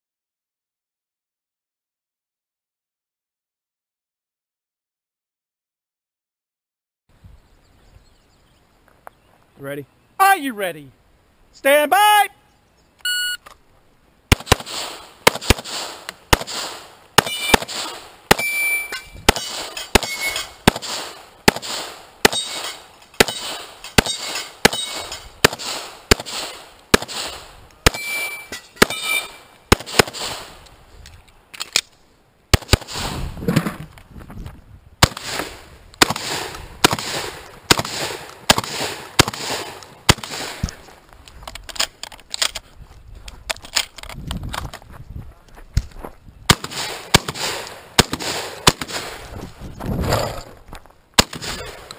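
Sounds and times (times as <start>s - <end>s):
pistol gunshots: 14.3s - 30.6s, 32.5s - 33.2s, 35.0s - 40.6s, 46.5s - 49.2s, 51.2s - 51.9s
steel target ping: 18.3s - 20.6s, 27.9s - 29.4s.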